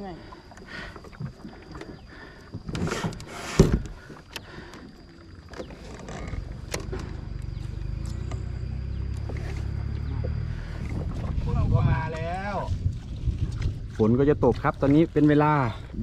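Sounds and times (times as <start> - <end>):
kayak paddle strokes splashing: 0.0 - 16.0
paddle thud: 1.1 - 7.3
steady low rumble: 6.1 - 16.0.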